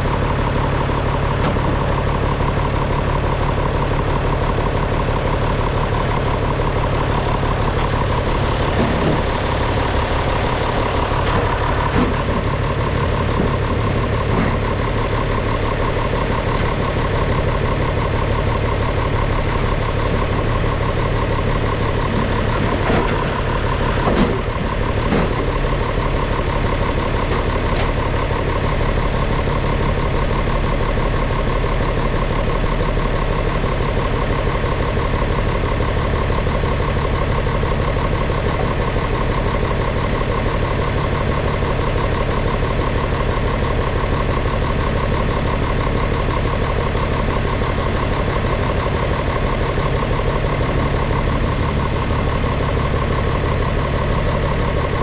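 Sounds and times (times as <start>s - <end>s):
diesel tractor engine running: 0.0s - 55.0s
knocks and clanks: 8.6s - 9.4s, 11.2s - 14.8s, 22.1s - 25.6s.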